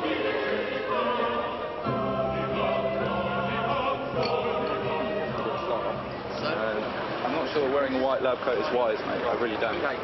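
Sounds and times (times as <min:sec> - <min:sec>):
choir singing: 0:00.0 - 0:06.9
low held chord: 0:00.0 - 0:06.9.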